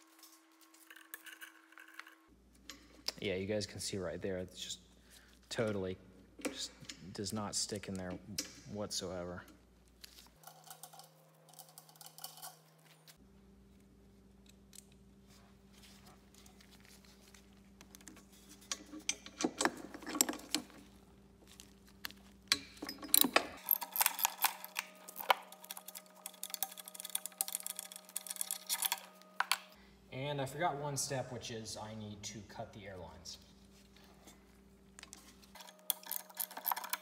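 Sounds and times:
faint steady hum: 0.0s - 37.0s
metal tools clinking: 10.4s - 13.0s, 18.4s - 21.0s, 22.5s - 29.5s, 35.5s - 37.0s.

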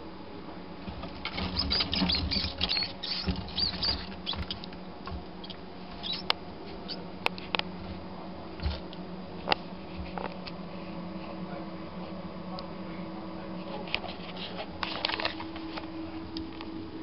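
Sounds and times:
mouse squeaking: 1.2s - 7.1s.

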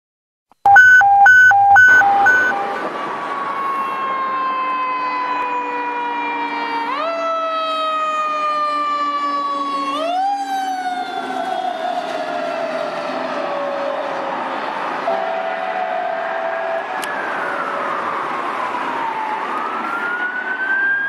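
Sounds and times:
fire engine siren wailing: 0.7s - 21.0s
loud horn blasts: 15.1s - 17.0s.

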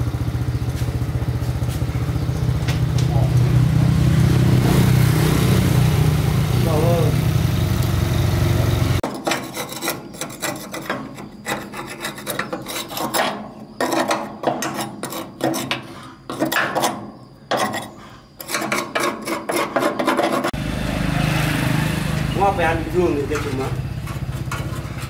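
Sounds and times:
engine running: 0.0s - 9.0s, 20.5s - 25.0s
hand file rasping: 9.0s - 20.6s.

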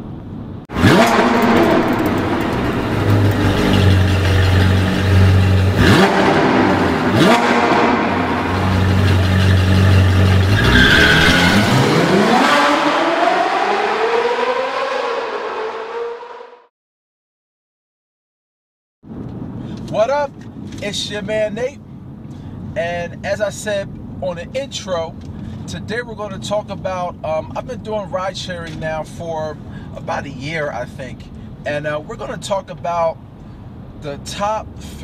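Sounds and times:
sports car engine revving: 0.7s - 16.6s.

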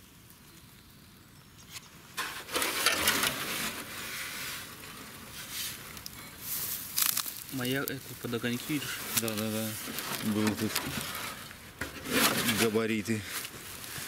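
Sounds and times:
rustling and crackling handling: 1.7s - 14.0s.

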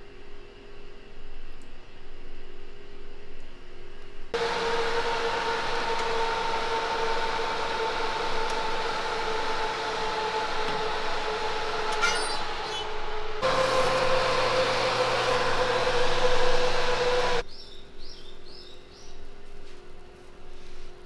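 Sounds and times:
oven fan hum: 2.4s - 17.4s.

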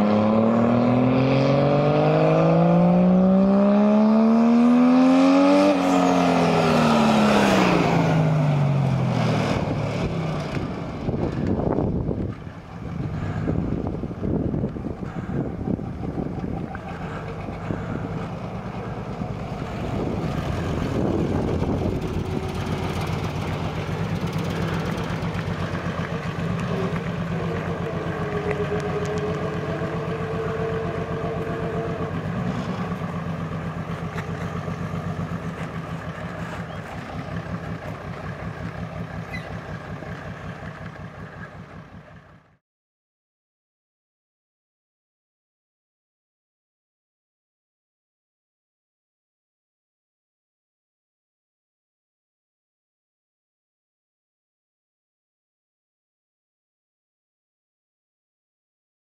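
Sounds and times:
diesel tractor engine running: 6.2s - 42.6s.

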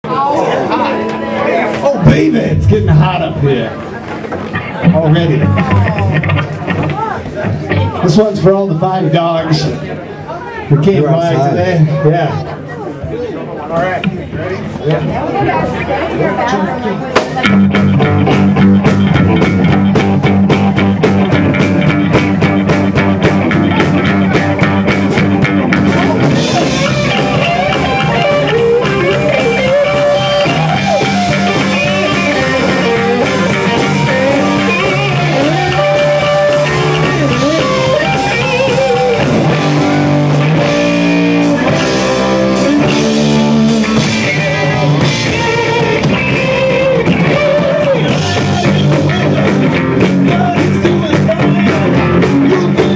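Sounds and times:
electric guitar: 0.0s - 12.5s, 14.0s - 52.9s
bass guitar: 0.0s - 12.6s, 13.9s - 52.9s
drum kit: 0.9s - 8.4s, 17.1s - 52.9s
lead vocals singing: 42.6s - 49.4s.

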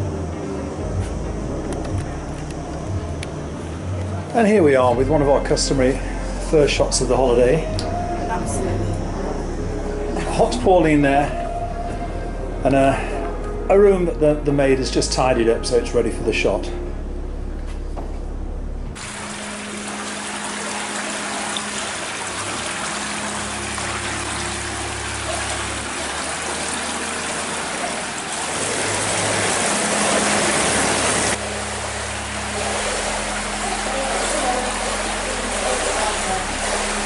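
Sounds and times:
running water rushing: 19.0s - 37.0s.

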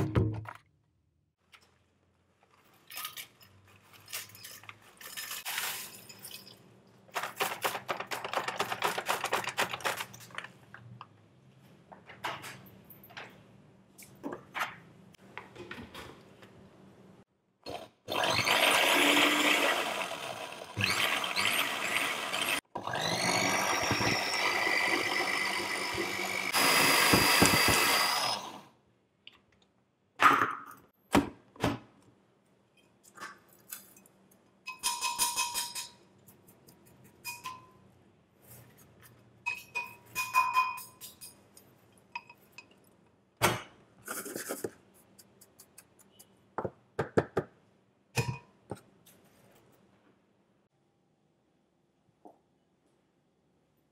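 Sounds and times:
blender grinding chips: 17.7s - 28.6s
glass jar clinks and taps: 39.5s - 41.4s.

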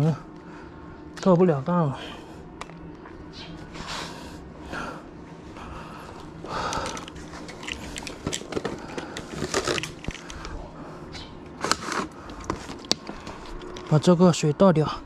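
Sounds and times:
man breathing heavily: 0.0s - 1.2s, 1.8s - 2.6s, 3.3s - 11.4s.

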